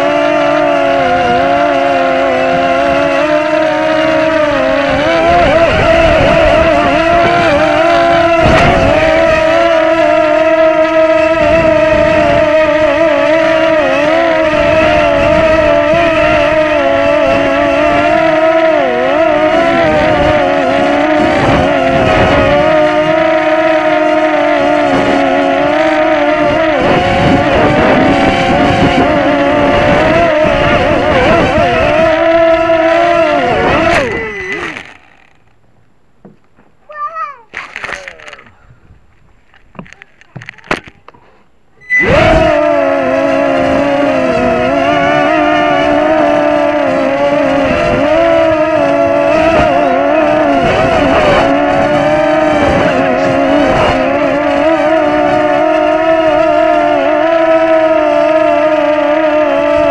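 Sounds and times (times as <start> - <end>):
quadcopter motors whining: 0.0 - 35.5, 36.9 - 38.9, 39.5 - 41.2, 41.8 - 59.9
wind buffeting: 0.0 - 35.9, 37.6 - 59.9.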